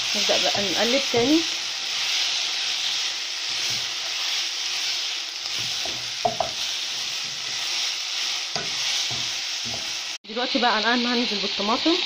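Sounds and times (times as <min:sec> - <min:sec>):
meat sizzling in a pot: 0:00.0 - 0:12.0
wooden spoon stirring: 0:01.0 - 0:10.0
spoon knocking against pot: 0:05.8 - 0:06.6.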